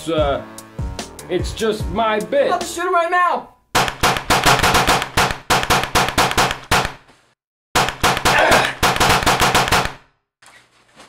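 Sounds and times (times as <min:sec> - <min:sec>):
rapid gunfire: 0:03.8 - 0:07.0, 0:07.8 - 0:10.1.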